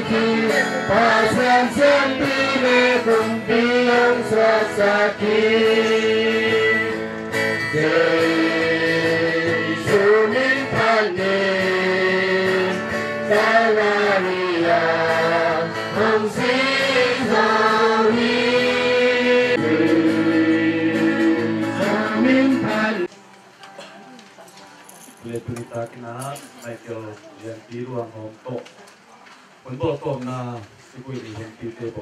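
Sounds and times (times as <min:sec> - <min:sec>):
choir singing a slow hymn: 0:00.0 - 0:23.1.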